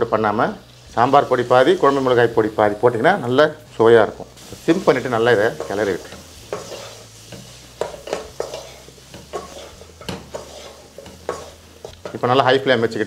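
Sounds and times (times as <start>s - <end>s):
vegetables sizzling: 0.0s - 13.0s
wooden spatula scraping a pan: 4.4s - 12.2s.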